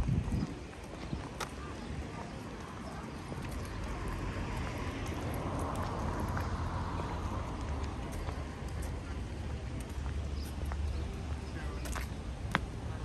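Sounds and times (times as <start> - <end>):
vehicle passing: 3.0 - 11.7.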